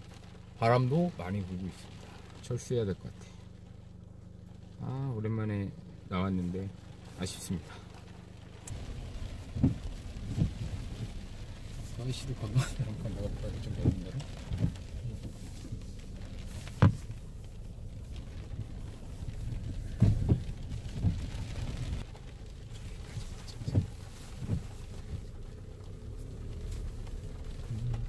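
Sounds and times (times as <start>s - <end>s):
vehicle rumbling over stones: 0.0s - 28.0s
thumps and knocks: 8.7s - 11.1s, 16.6s - 17.1s.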